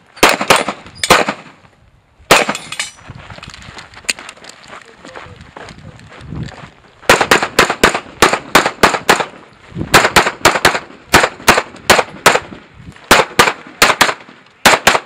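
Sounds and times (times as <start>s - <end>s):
pistol shots: 0.2s - 1.6s, 2.3s - 2.8s, 7.1s - 12.5s, 13.1s - 15.0s.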